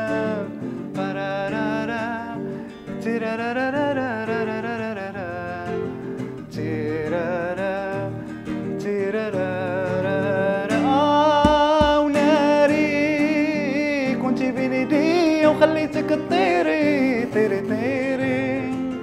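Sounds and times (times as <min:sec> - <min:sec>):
man singing: 0:00.0 - 0:02.4, 0:06.5 - 0:08.2, 0:08.8 - 0:19.0
nylon-string guitar: 0:00.0 - 0:19.0.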